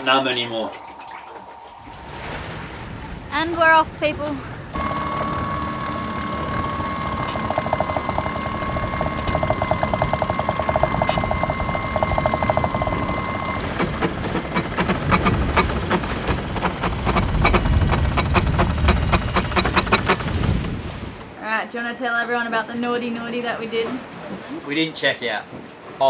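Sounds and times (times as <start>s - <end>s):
winch drum clicking: 4.7s - 21.4s
winch motor whine: 4.7s - 21.4s.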